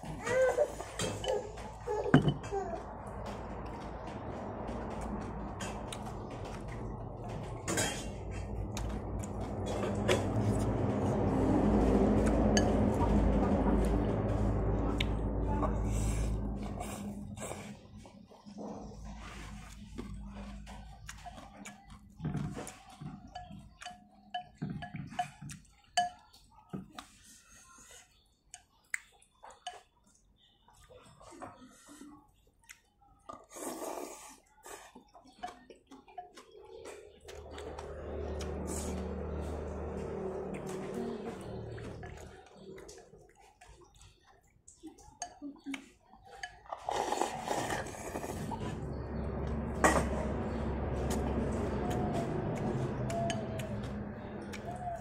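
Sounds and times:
low motor hum: 0.0 - 24.0, 36.9 - 43.2, 47.7 - 55.0
man chewing noodles: 32.3 - 45.2, 45.8 - 55.0.

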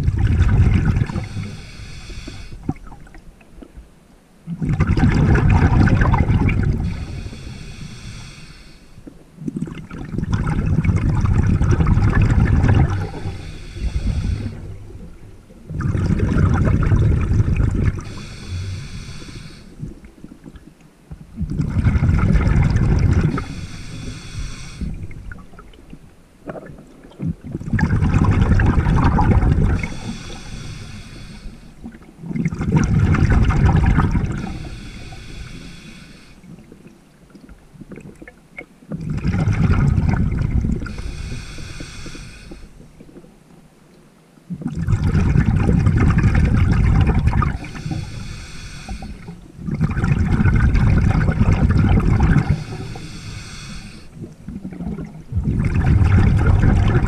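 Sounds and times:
bubbling rushes: 0.0 - 1.6, 4.6 - 7.3, 9.4 - 19.2, 21.4 - 23.7, 26.4 - 30.5, 31.8 - 35.3, 38.9 - 41.4, 44.6 - 48.2, 48.9 - 53.4, 54.1 - 57.0
diver breathing underwater: 0.0 - 3.0, 5.8 - 9.2, 10.4 - 20.4, 21.6 - 25.6, 28.1 - 32.0, 32.6 - 36.8, 39.2 - 42.9, 45.6 - 57.0.

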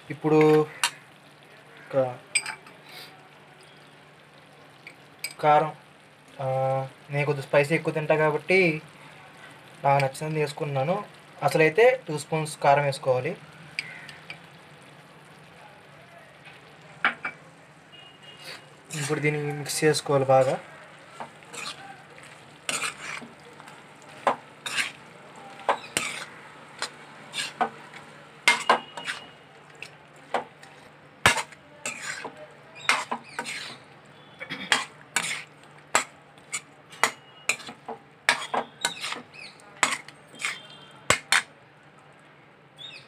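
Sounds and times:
spoon scraping a metal pan: 18.3 - 19.3, 20.3 - 21.9, 22.7 - 23.3, 24.1 - 27.8, 28.4 - 33.8, 34.7 - 41.5.

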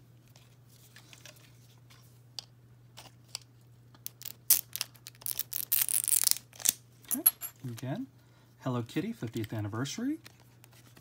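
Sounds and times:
low steady hum: 0.0 - 11.0
plastic wrap crackling and tearing: 4.1 - 6.8.

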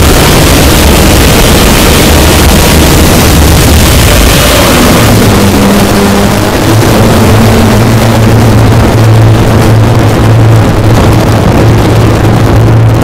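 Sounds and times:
harsh distorted rumbling noise: 0.0 - 13.0
steady low hum: 0.0 - 13.0.

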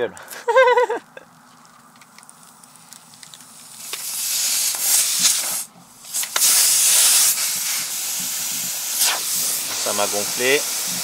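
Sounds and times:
air hissing from a tyre: 3.4 - 11.0.

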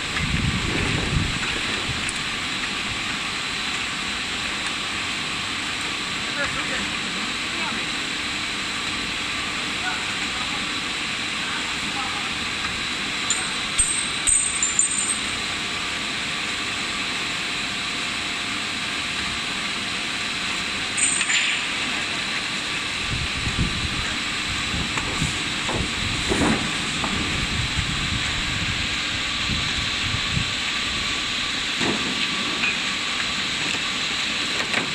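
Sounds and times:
low rumbling: 23.0 - 31.7.

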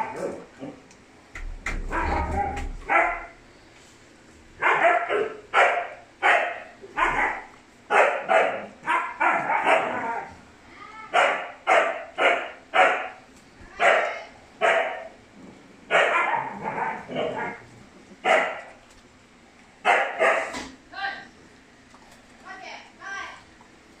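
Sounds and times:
dog barking: 1.9 - 3.4, 4.6 - 10.3, 11.1 - 13.2, 13.8 - 15.2, 15.9 - 17.6, 18.2 - 18.8, 19.8 - 20.6.

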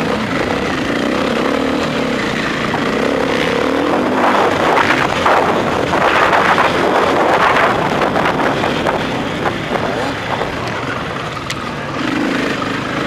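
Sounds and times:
motorcycle engine running: 0.0 - 13.0
wind noise on microphone: 3.8 - 10.9.

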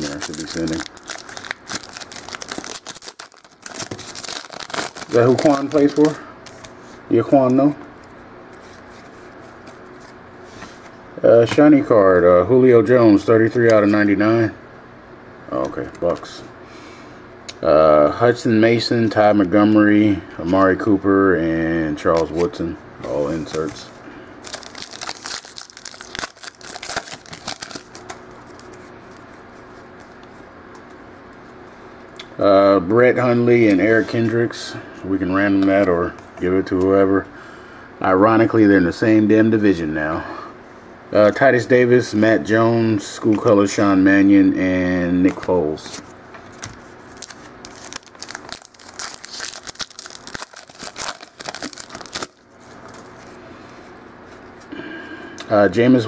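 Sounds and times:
foil wrapper crinkling and tearing: 0.0 - 6.7, 24.4 - 29.2, 46.6 - 53.2.

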